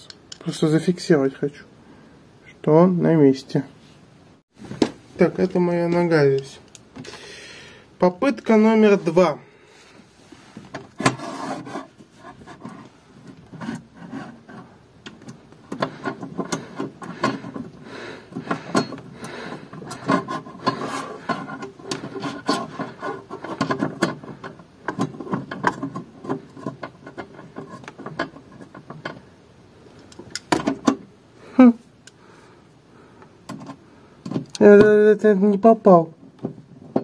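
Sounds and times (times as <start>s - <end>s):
metal fittings scraping on wood: 10.3s - 29.3s.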